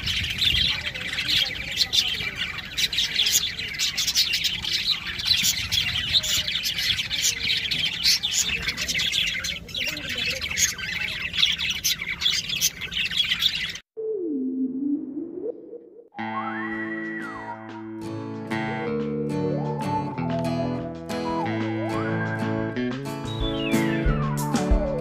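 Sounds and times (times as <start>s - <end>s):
budgerigars chattering: 0.0s - 13.8s.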